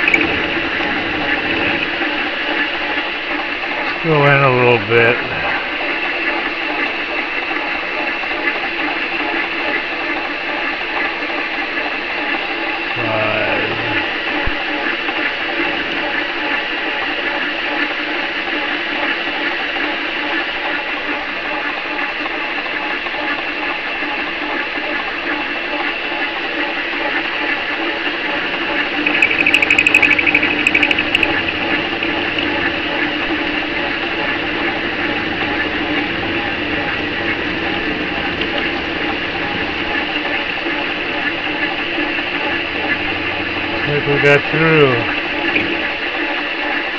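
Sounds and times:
lathe motor and gear whine: 0.0 - 46.9
fast rattling buzz: 28.4 - 40.0
sharp clicks: 29.0 - 32.5.

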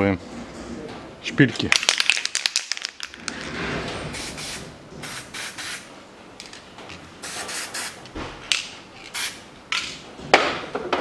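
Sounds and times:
spray can hissing: 4.2 - 5.9, 7.2 - 8.0, 9.1 - 9.4.

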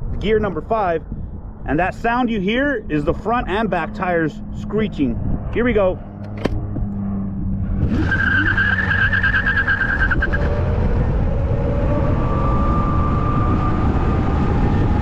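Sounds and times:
road rumble: 0.0 - 15.0
wind: 0.0 - 15.0
tires screeching: 2.9 - 15.0.

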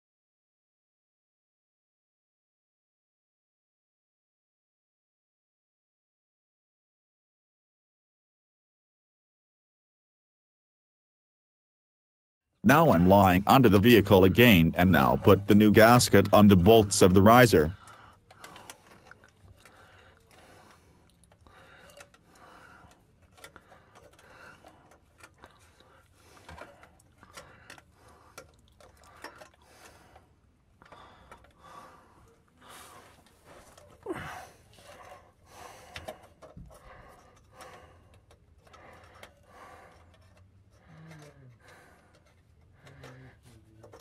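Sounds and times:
small metal parts clicking: 17.7 - 44.0
person breathing softly: 17.8 - 43.8.

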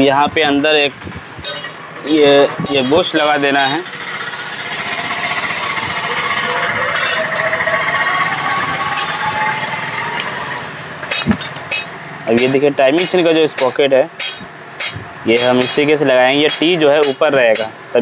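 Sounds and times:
machine running with faint whine: 1.2 - 12.5.

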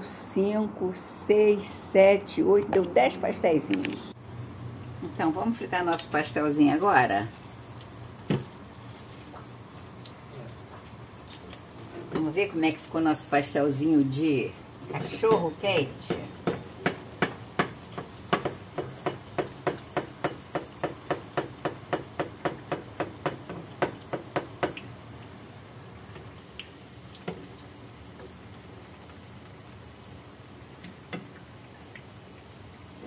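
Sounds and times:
oil sizzling: 1.4 - 33.0
metal skimmer knocking on a pan: 14.9 - 24.8.

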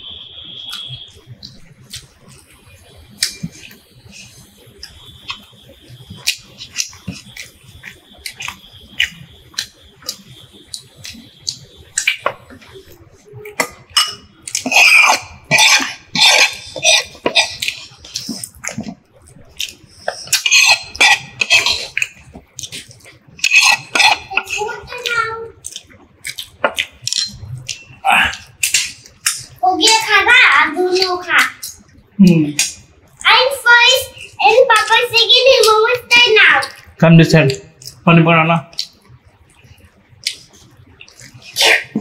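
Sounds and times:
chewing: 0.6 - 30.1, 36.5 - 37.0, 37.7 - 38.0, 38.7 - 42.0
fingers clicking on plates: 6.2 - 30.2.

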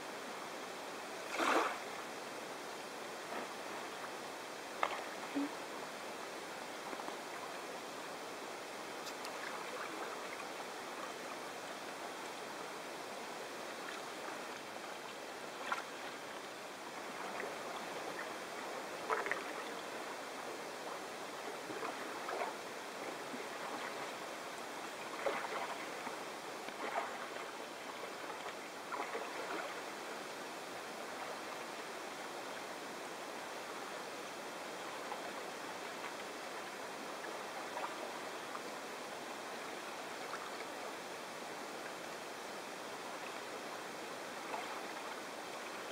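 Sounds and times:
moving water hiss: 0.0 - 45.9
kayak paddle splashes: 1.2 - 1.9, 17.0 - 24.2, 24.9 - 30.0, 44.4 - 45.7.

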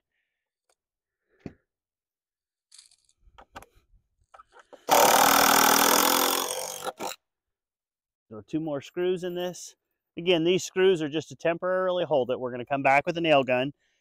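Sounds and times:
cordless drill motor whine: 4.8 - 7.2.

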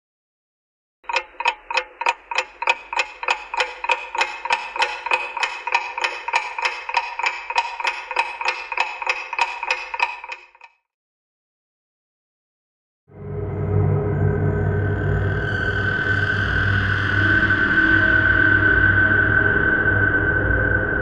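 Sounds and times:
clock ticking: 1.0 - 10.8.

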